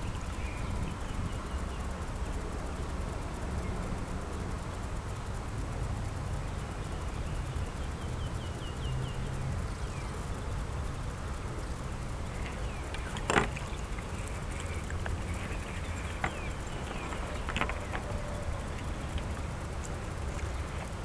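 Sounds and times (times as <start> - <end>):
bird chirping: 0.0 - 2.2, 6.8 - 21.0
low outdoor rumble: 0.0 - 21.0.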